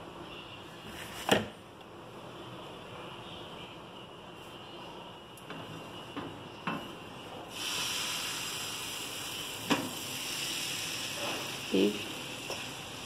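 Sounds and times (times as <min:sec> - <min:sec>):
batter sizzling in frying pan: 0:07.5 - 0:13.0.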